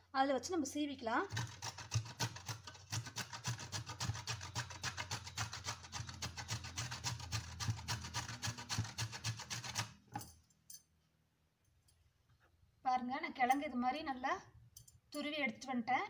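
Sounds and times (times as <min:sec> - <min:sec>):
root grated on metal grater: 0:01.2 - 0:10.0.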